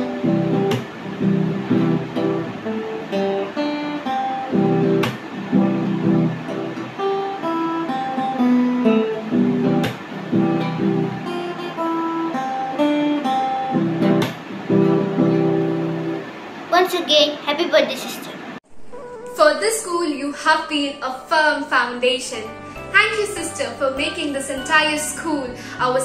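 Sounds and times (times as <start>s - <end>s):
acoustic guitar: 0.0s - 19.4s.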